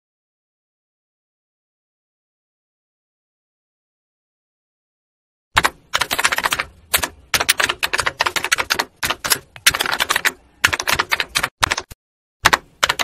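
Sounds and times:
typewriter keys clattering: 0:05.6 - 0:13.0.

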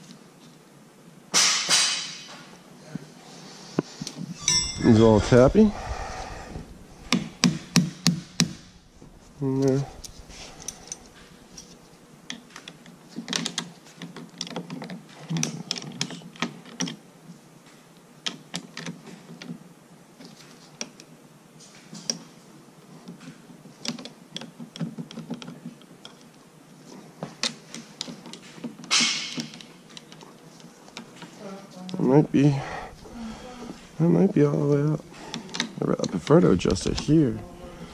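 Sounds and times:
metallic clicks and rattles: 0:09.6 - 0:17.0.

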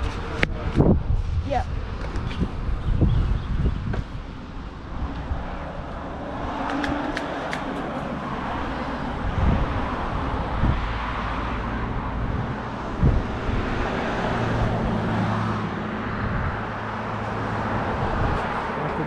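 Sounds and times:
road and wind noise: 0:00.0 - 0:19.0.

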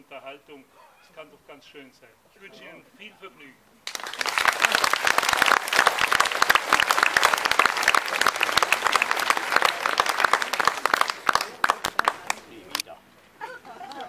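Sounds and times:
audience applauding: 0:03.8 - 0:12.8.

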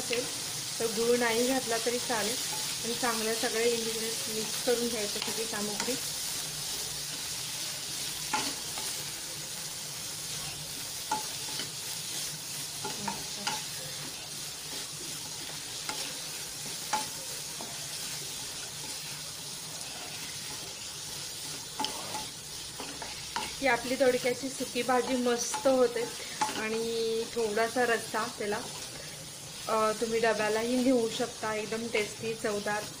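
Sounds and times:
vegetables sizzling in oil: 0:00.0 - 0:33.0
spatula knocking and scraping pan: 0:20.4 - 0:23.8.

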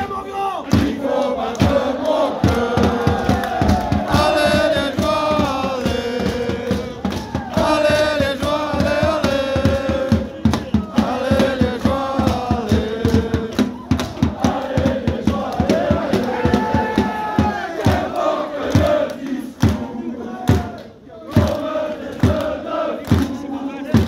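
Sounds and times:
crowd singing a chant: 0:00.1 - 0:24.0
hand claps: 0:01.1 - 0:04.3, 0:11.3 - 0:14.3, 0:18.6 - 0:19.9, 0:20.5 - 0:23.4.

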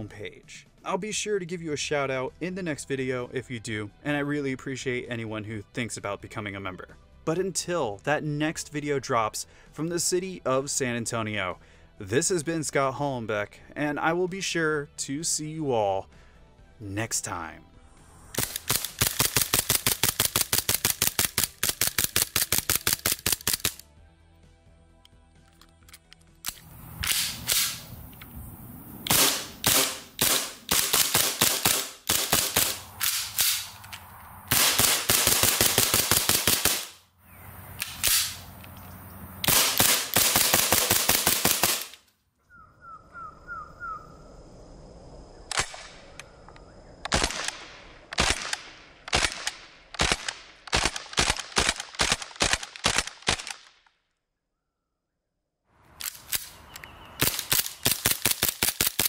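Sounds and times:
airsoft pistol shots: 0:18.4 - 0:23.8, 0:27.0 - 0:27.9, 0:29.1 - 0:33.8, 0:34.5 - 0:37.0, 0:37.8 - 0:38.4, 0:39.5 - 0:42.0.

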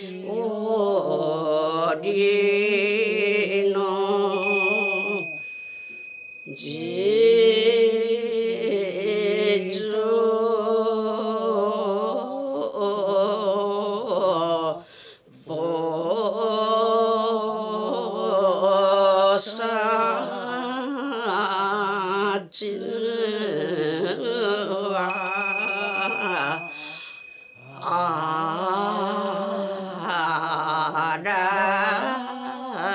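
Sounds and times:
elderly woman singing a hymn: 0:00.0 - 0:05.4, 0:06.5 - 0:32.9
small bell ringing: 0:04.3 - 0:07.6, 0:25.1 - 0:29.1.

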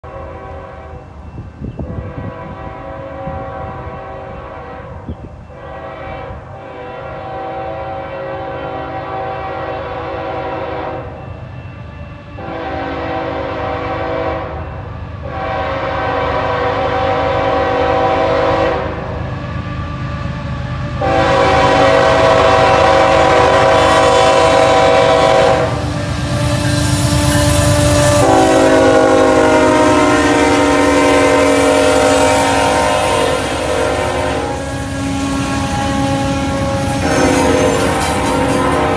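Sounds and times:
train air horn blasts: 0:00.0 - 0:38.9
locomotive engine rumble: 0:08.4 - 0:38.9.

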